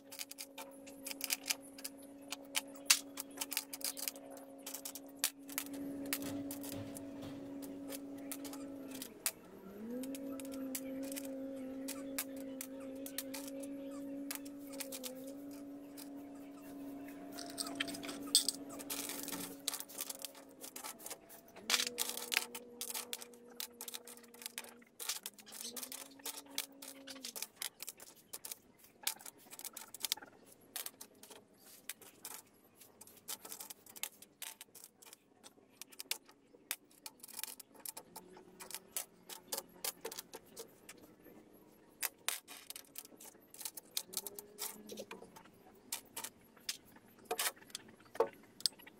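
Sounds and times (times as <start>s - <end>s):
steady background hum: 0.0s - 48.9s
metal screws clinking: 17.3s - 28.5s.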